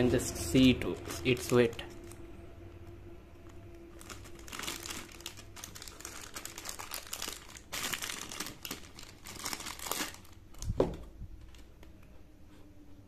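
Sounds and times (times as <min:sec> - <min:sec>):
plastic bag crinkling: 0:03.7 - 0:11.7.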